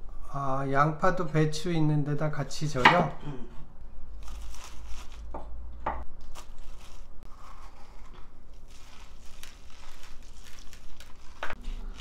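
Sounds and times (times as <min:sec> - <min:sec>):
cabbage leaves rustling and crunching: 0:04.2 - 0:05.3, 0:06.3 - 0:07.7, 0:08.5 - 0:12.0.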